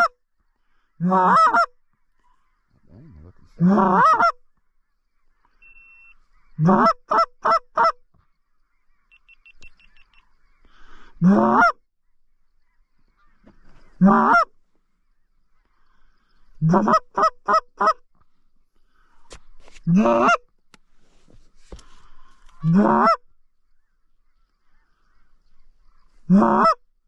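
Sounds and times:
goose call honks and clucks: 0:00.0 - 0:00.2, 0:01.0 - 0:04.4, 0:06.6 - 0:08.1, 0:11.2 - 0:11.8, 0:13.9 - 0:14.6, 0:16.6 - 0:18.0, 0:19.8 - 0:20.5, 0:22.4 - 0:23.3, 0:26.3 - 0:26.9.

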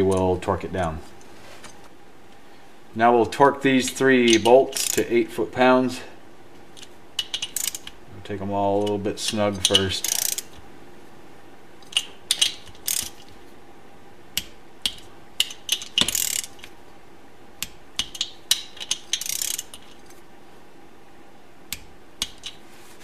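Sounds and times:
ratchet wrench clicking: 0:04.3 - 0:05.1, 0:07.2 - 0:07.9, 0:09.6 - 0:10.6, 0:11.9 - 0:13.3, 0:14.8 - 0:16.7, 0:17.6 - 0:20.1.

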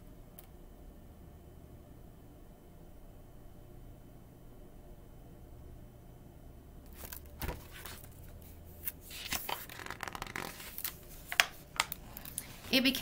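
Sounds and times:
book pages rustling and turning: 0:06.9 - 0:13.0.

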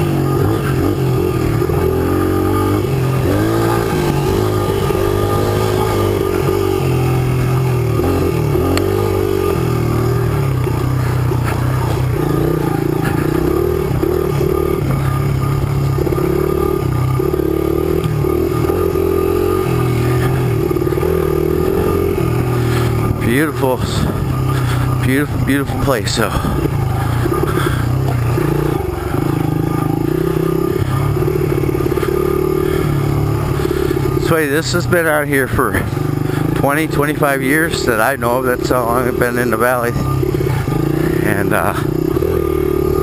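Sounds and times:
motorcycle engine revving: 0:00.0 - 0:43.0.

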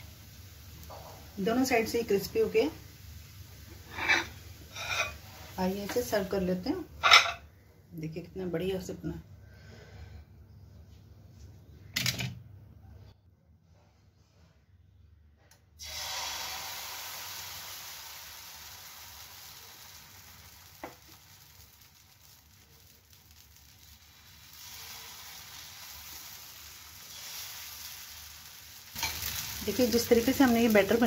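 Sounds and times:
batter sizzling on a griddle: 0:00.0 - 0:07.3, 0:15.8 - 0:31.0.

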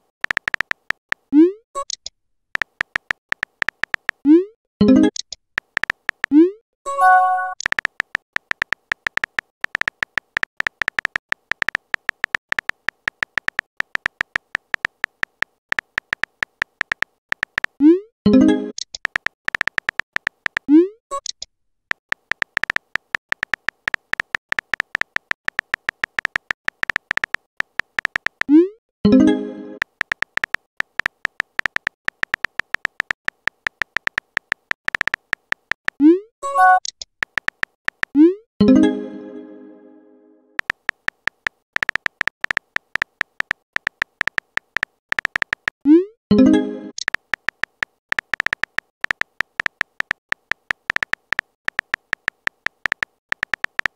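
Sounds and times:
phone keyboard tap clicks: 0:00.2 - 0:01.2, 0:02.6 - 0:04.2, 0:05.1 - 0:06.3, 0:07.6 - 0:17.8, 0:19.0 - 0:20.7, 0:21.9 - 0:28.5, 0:29.8 - 0:36.0, 0:37.2 - 0:38.2, 0:40.6 - 0:45.8, 0:47.0 - 0:53.9.

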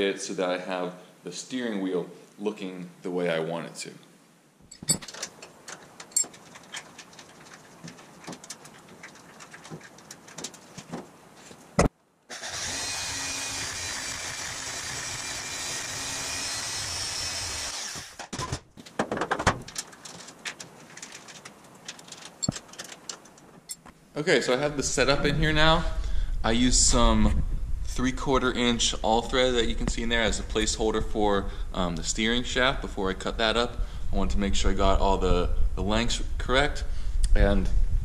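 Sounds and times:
tools clinking on steel: 0:04.7 - 0:07.0, 0:22.3 - 0:23.9
bandsaw cutting metal: 0:12.3 - 0:18.3.

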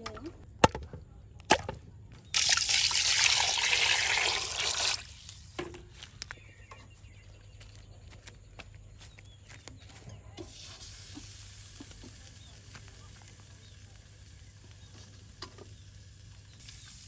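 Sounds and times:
water pouring into metal pot: 0:02.4 - 0:05.4.

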